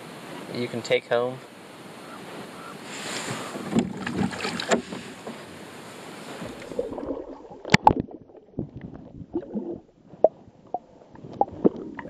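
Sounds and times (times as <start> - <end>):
underwater gurgle: 6.4 - 12.0.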